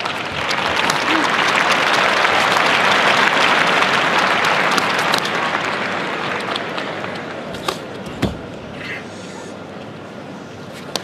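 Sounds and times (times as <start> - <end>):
crowd applause: 0.0 - 7.5.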